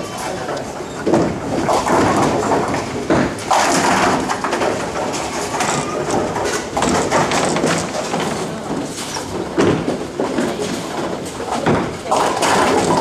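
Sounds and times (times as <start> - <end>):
murmur of voices: 0.0 - 1.1
bowling ball rolling: 0.0 - 13.0
bowling pins being knocked: 0.0 - 13.0.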